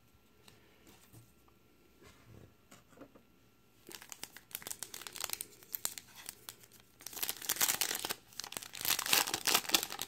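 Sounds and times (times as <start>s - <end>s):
foil wrapper tearing and crinkling: 3.8s - 10.0s.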